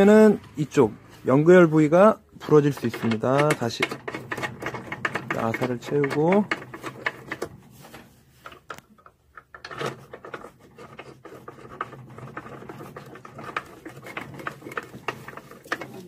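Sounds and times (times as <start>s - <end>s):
plastic rubbing and scraping: 0.0s - 16.0s.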